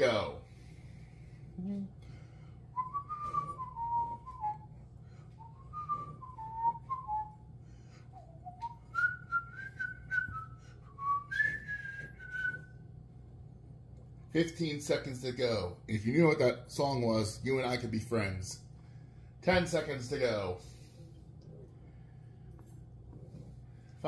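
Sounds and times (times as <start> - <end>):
man whistling a tune: 2.8 - 7.5, 8.1 - 12.8.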